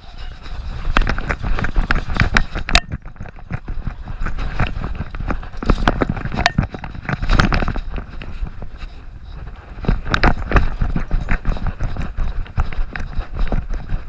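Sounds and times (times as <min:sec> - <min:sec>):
camera mount rattling: 0:00.9 - 0:08.2.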